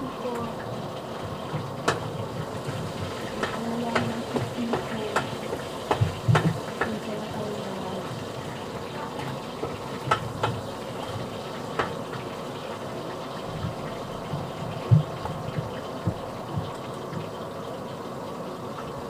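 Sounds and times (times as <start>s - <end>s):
food frying hiss: 0.0s - 19.0s.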